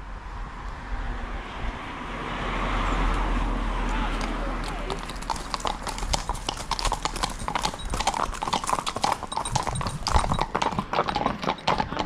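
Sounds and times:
horse hooves clip-clopping on tarmac: 3.9 - 12.0.

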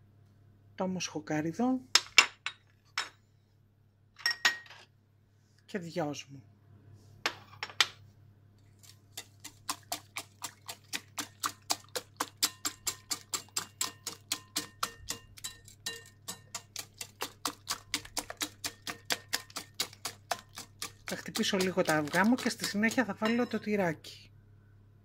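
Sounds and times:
whisk clicking against glass bowl: 9.1 - 23.7.

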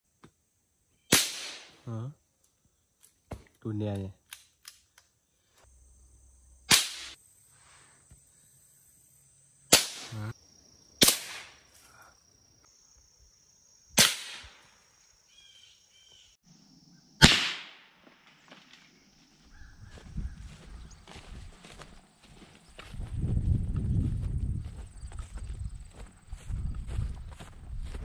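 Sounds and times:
rifle shots: 1.1 - 1.7, 11.0 - 11.6, 14.0 - 14.6, 17.2 - 18.6.

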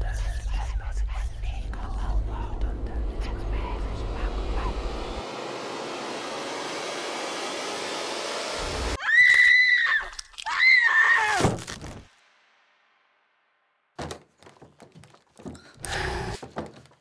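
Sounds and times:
high-pitched screams: 9.0 - 11.5.

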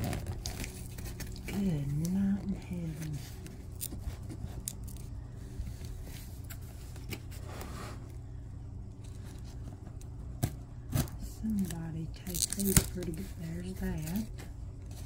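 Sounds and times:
tape scraping and tearing: 0.0 - 2.2, 10.4 - 15.0
low steady hum: 0.0 - 15.0.

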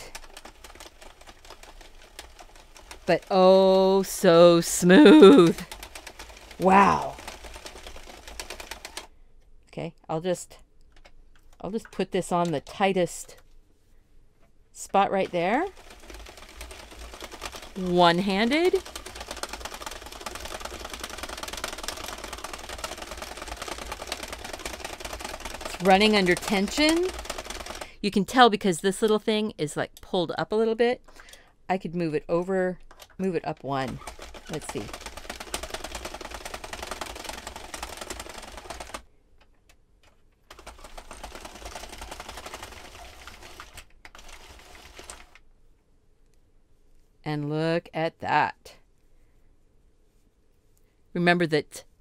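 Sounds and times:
knitting machine needle clicks: 14.9 - 27.9, 32.3 - 45.4.

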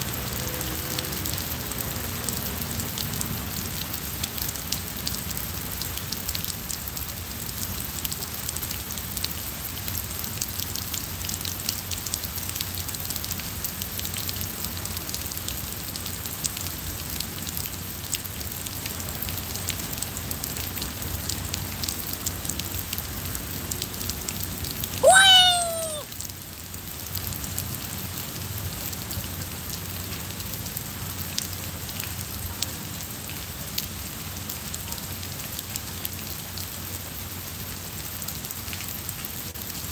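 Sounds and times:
rain on paving and foliage: 0.0 - 39.9
animal call: 25.0 - 26.1.

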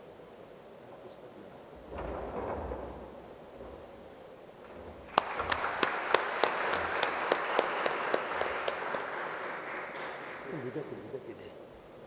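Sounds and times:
loud single claps: 4.7 - 10.6
audience applauding: 4.7 - 11.2.

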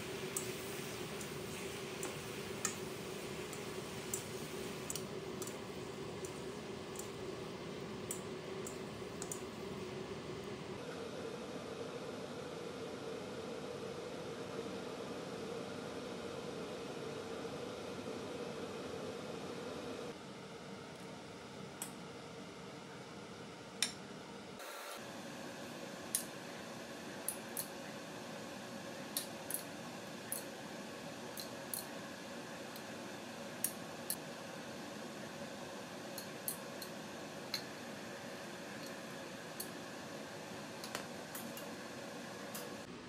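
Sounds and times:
steady hiss: 0.0 - 6.5.

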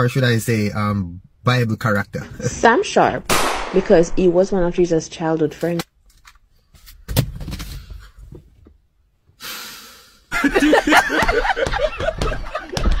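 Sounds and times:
person exhaling with hiss: 9.4 - 10.3.

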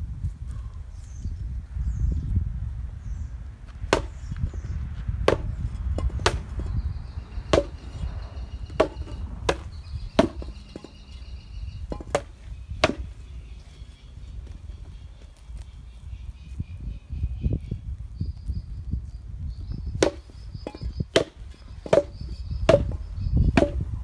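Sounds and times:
steady low rumble: 0.0 - 19.9
sword whacking rubber tires: 3.9 - 4.2, 5.2 - 6.7, 7.5 - 8.0, 8.7 - 11.0, 11.9 - 13.2, 20.0 - 24.0.

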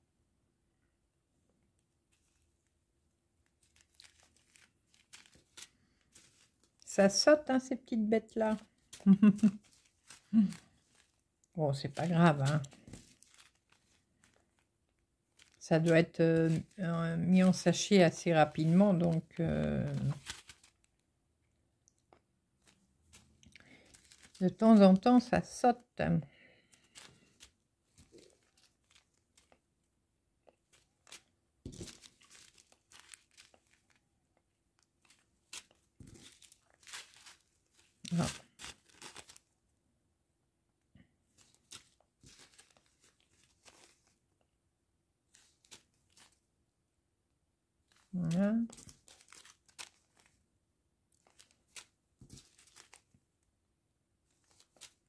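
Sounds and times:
plastic zip bag crinkling: 3.5 - 6.9, 8.4 - 14.7, 15.3 - 21.0, 22.6 - 24.8, 26.6 - 29.6, 30.6 - 34.0, 34.8 - 39.5, 41.4 - 44.2, 45.3 - 46.4, 47.9 - 50.4, 51.1 - 53.1, 54.4 - 55.0.

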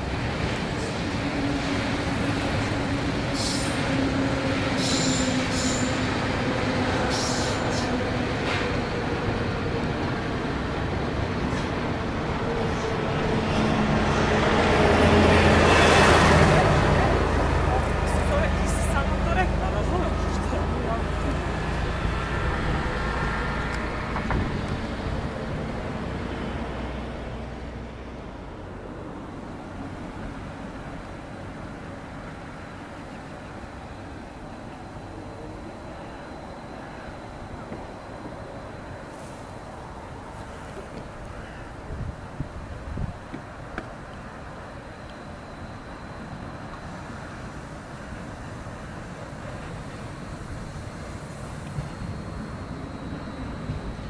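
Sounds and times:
electric train rumbling: 0.0 - 54.0
train wheel squeals: 3.2 - 6.3, 6.9 - 9.0.

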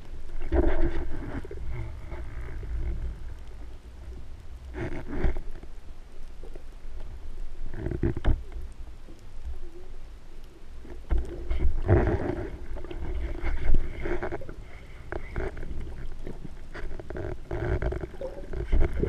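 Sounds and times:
muffled underwater rushing water: 0.0 - 19.0
small clicks and knocks: 7.7 - 9.2.

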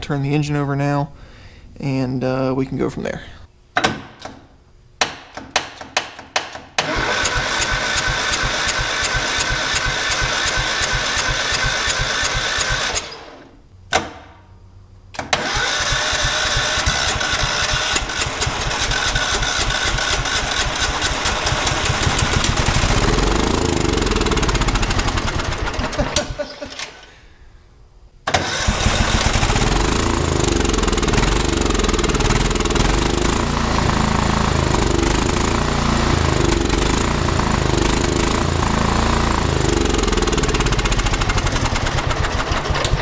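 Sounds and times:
electric starter cranking engine: 6.8 - 13.6, 15.2 - 27.2, 28.3 - 43.0.

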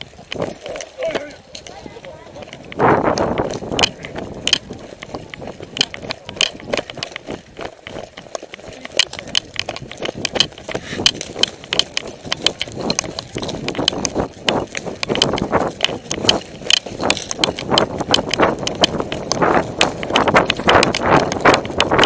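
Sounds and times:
carried gear clicking: 0.0 - 22.0
footsteps crunching in woodland: 0.0 - 22.0.

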